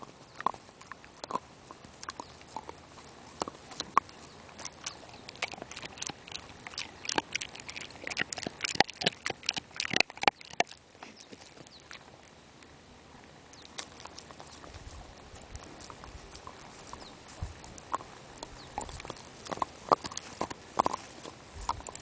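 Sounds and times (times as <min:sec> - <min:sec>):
dog chewing a bone: 0:00.0 - 0:12.3, 0:13.6 - 0:22.0.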